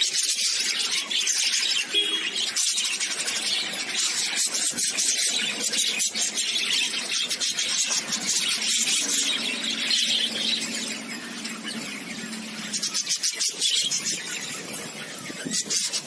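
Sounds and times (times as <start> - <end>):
budgerigars screeching and chattering: 0.0 - 16.0.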